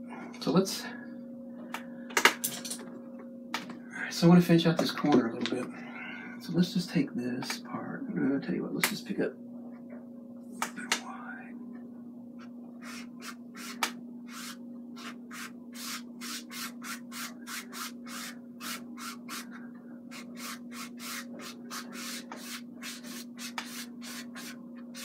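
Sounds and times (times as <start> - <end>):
steady low hum: 0.0 - 25.0
paintbrush scrubbing on canvas: 12.8 - 25.0.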